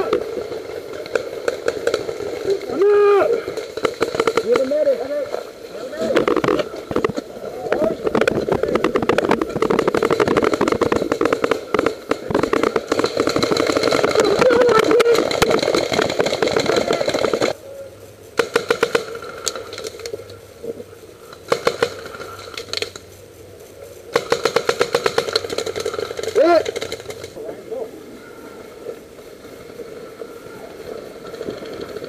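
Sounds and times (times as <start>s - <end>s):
paintball markers firing: 0.0s - 2.6s, 3.3s - 5.4s, 6.0s - 17.6s, 18.4s - 20.2s, 21.4s - 23.0s, 24.1s - 27.4s.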